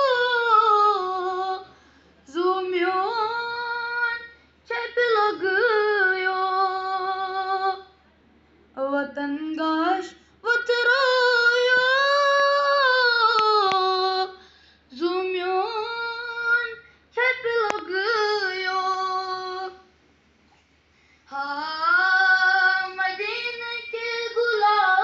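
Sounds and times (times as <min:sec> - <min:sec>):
person singing unaccompanied: 0:15.0 - 0:19.8, 0:21.3 - 0:25.0.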